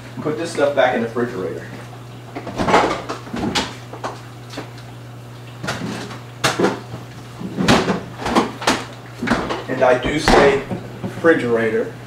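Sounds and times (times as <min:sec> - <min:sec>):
refrigerator low hum: 0:00.0 - 0:12.0
knocks and clunks of items: 0:07.6 - 0:11.2.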